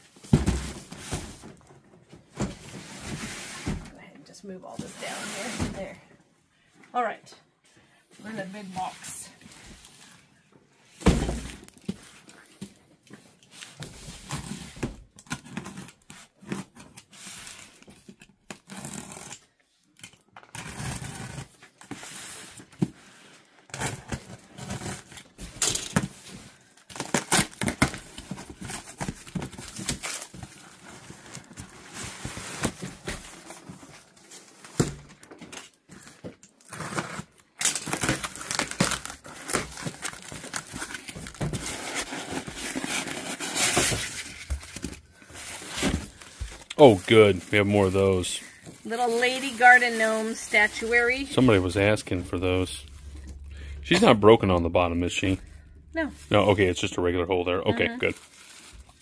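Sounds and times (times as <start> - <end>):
cardboard scraping and tearing: 18.5 - 19.4, 20.5 - 22.6, 36.6 - 54.4
packing material rustling: 35.6 - 59.0.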